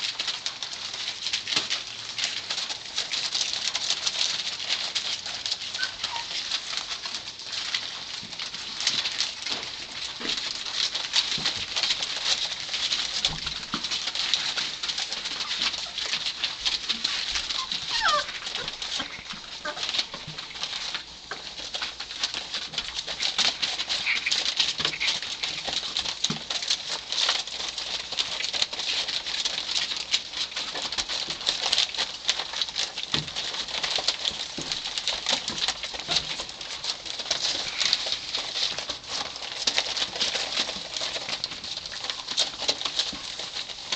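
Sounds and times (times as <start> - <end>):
newspaper crackling: 0.0 - 43.9
puppies squeaking and whimpering: 5.5 - 6.6, 15.3 - 20.8, 23.1 - 25.8
puppy squealing: 5.7 - 6.4, 17.5 - 20.0.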